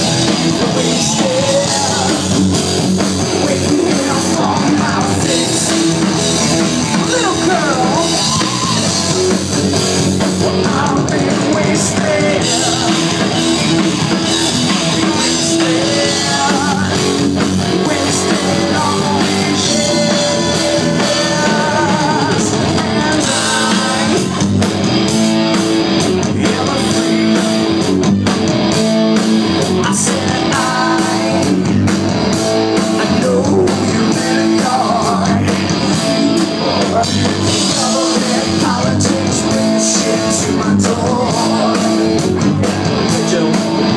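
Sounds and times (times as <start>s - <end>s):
person singing: 0.0s - 2.5s, 3.2s - 6.2s, 10.4s - 24.4s, 26.2s - 27.8s, 29.8s - 31.7s, 33.0s - 43.9s
drum kit: 0.0s - 43.9s
electric guitar: 0.0s - 43.9s.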